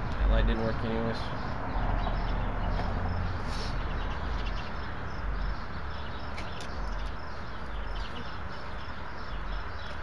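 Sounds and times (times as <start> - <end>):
small birds chirping: 0.0 - 10.0.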